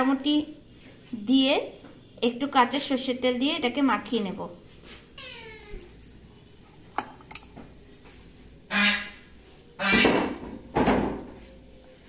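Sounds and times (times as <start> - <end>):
utensils clinking in steel bowl: 5.8 - 7.7.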